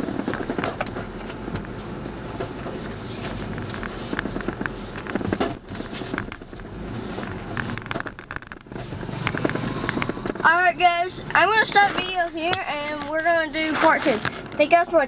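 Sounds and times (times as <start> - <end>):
truck engine rumble: 0.0 - 15.0
clicks and rattles: 2.7 - 10.5, 11.6 - 14.8.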